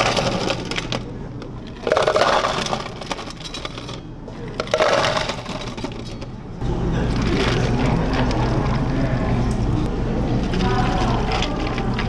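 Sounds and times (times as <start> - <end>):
ice cubes clattering into cups: 0.0 - 1.1, 1.7 - 6.3, 10.5 - 12.0.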